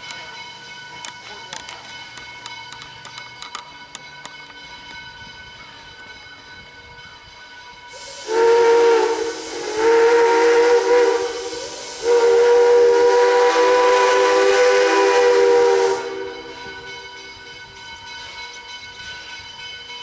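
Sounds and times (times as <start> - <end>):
steam whistle blowing chord: 7.9 - 17.5
steam hissing: 7.9 - 18.4.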